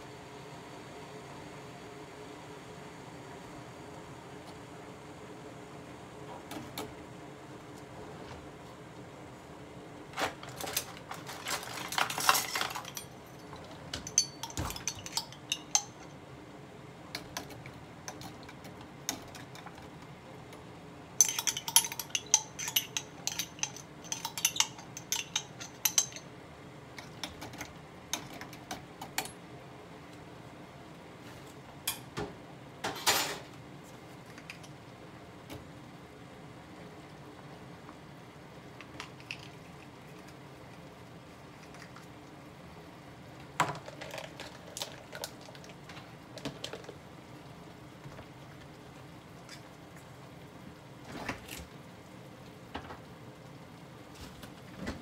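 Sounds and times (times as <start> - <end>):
metal utensils clinking in a pot: 10.7 - 16.1, 21.2 - 26.3.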